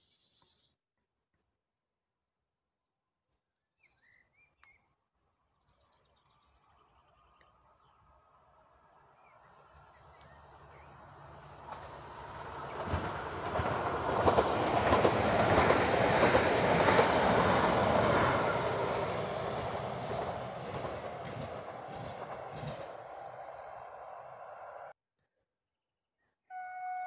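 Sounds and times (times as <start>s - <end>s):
passenger train passing: 8.7s - 24.9s
wheels clicking over rail joints: 11.2s - 24.4s.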